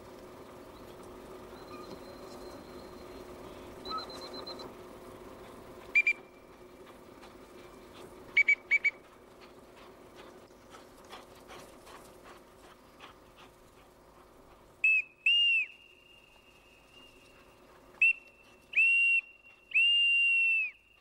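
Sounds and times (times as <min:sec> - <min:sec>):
dog-training whistle blasts: 0:06.0 - 0:06.2, 0:14.8 - 0:16.3, 0:18.0 - 0:20.8.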